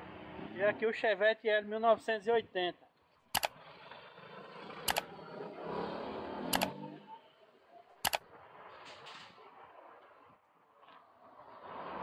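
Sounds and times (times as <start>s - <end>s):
faint street noise: 0.0s - 12.0s
mouse click sound effects: 6.5s - 6.7s.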